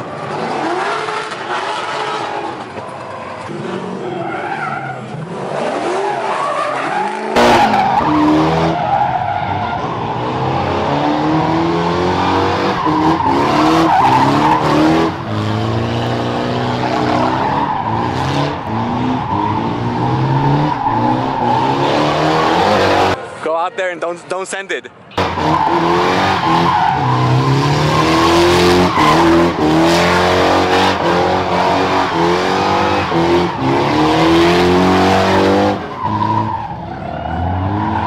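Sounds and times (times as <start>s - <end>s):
tyres skidding on asphalt: 0.0s - 23.6s, 25.2s - 38.0s
car engine revving: 7.0s - 23.2s, 25.2s - 38.0s.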